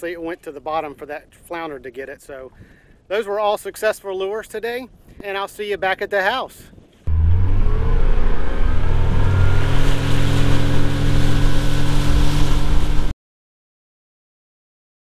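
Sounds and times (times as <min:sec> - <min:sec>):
wind: 0:00.0 - 0:13.1
motorboat engine humming: 0:07.1 - 0:13.1
water rushing: 0:07.1 - 0:13.1.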